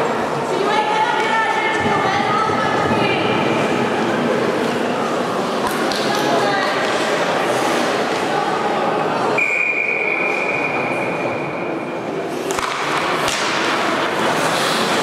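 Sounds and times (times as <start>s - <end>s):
hubbub of hall: 0.0s - 15.0s
steady high whistle tone: 9.4s - 11.5s
hockey sticks knocking: 12.3s - 15.0s.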